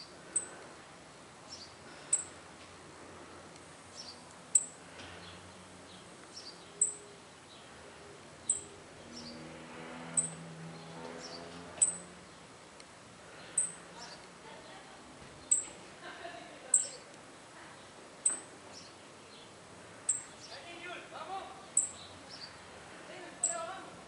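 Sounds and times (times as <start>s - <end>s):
bird chirping: 0.0s - 0.6s, 1.5s - 2.3s, 3.9s - 7.7s, 8.4s - 9.5s, 10.1s - 12.5s, 13.4s - 14.2s, 15.4s - 15.8s, 16.7s - 17.1s, 18.2s - 20.7s, 21.6s - 22.6s, 23.4s - 23.7s.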